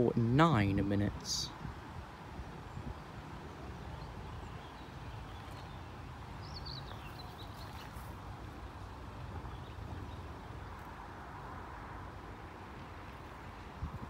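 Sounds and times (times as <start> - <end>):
small bird chirping: 3.9 - 8.1.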